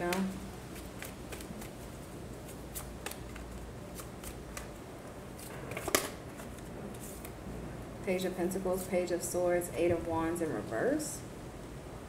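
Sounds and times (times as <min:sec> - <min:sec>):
cards being shuffled: 0:00.0 - 0:07.4
card slap: 0:05.4 - 0:06.2.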